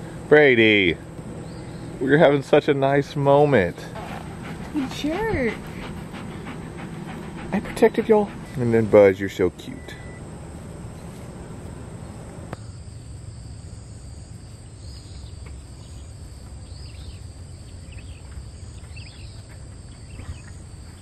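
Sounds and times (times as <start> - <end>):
crickets droning: 0.0 - 21.0
low background rumble: 0.0 - 21.0
short insect chirps: 12.0 - 21.0.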